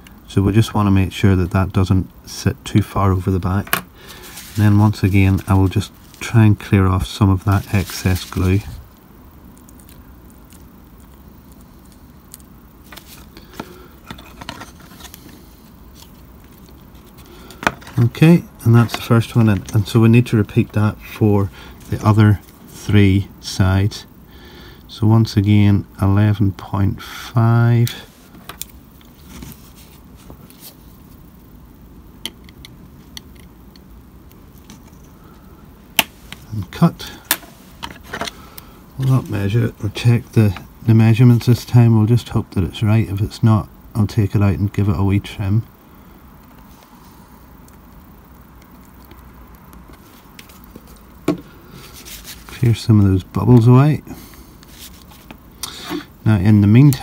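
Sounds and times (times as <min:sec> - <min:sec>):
towel rustling: 0:04.1 - 0:06.4.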